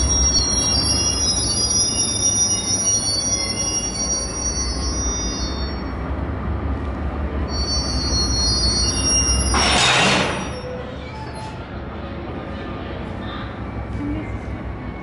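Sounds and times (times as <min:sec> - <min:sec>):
steel wheels squealing: 0:00.0 - 0:06.1, 0:07.4 - 0:11.7.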